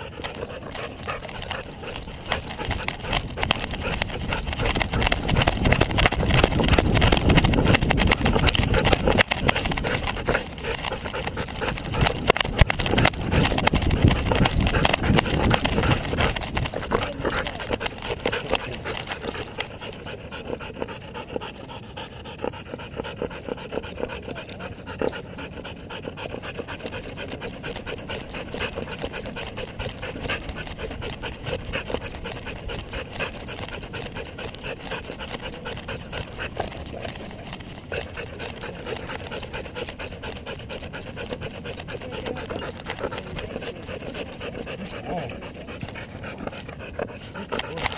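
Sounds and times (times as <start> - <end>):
camera mount rubbing and jostling: 0.0 - 20.1
dog panting: 0.0 - 47.9.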